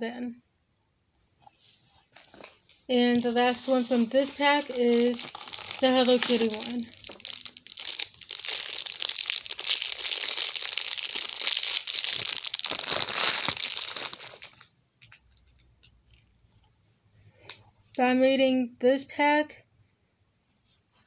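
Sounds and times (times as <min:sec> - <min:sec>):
plastic wrapper crinkling and tearing: 0:02.1 - 0:15.6.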